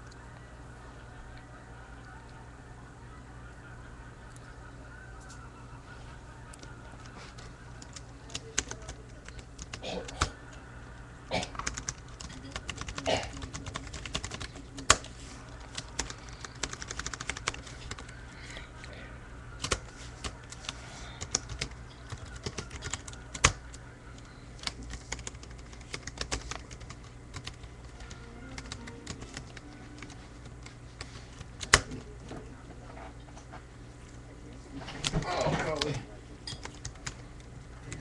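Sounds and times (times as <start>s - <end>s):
typing on computer keyboard: 7.8s - 10.3s, 11.5s - 15.1s, 15.7s - 18.1s, 19.6s - 23.7s, 24.6s - 30.5s, 36.5s - 37.2s.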